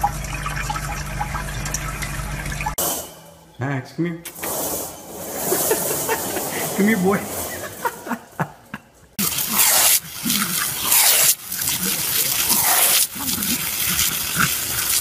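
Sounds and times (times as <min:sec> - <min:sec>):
garden hose spraying water: 0:09.2 - 0:15.0.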